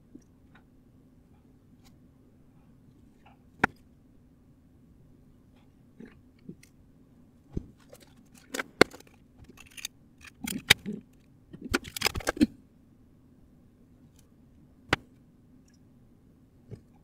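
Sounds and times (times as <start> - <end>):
faint steady hum: 0.0 - 17.0
sharp clicks and snips: 7.9 - 12.5.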